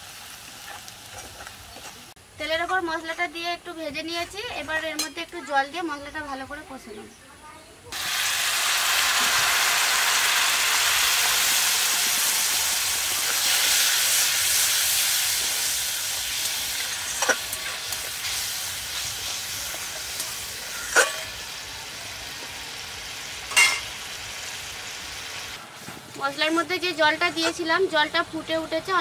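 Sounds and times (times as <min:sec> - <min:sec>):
oil sizzling and hissing: 0:00.0 - 0:05.9, 0:07.8 - 0:29.0
metal spatula clinking on pan: 0:23.5 - 0:23.9.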